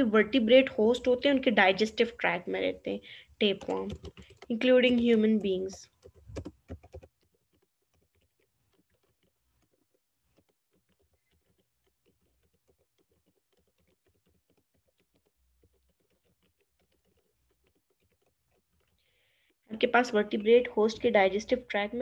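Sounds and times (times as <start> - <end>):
faint keyboard typing: 0.0 - 22.0.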